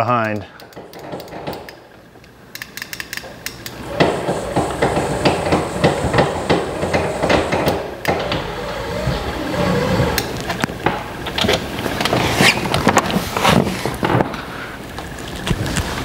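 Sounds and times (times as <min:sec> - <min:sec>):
sharp knocks and clicks: 0:00.6 - 0:01.8, 0:02.6 - 0:08.5.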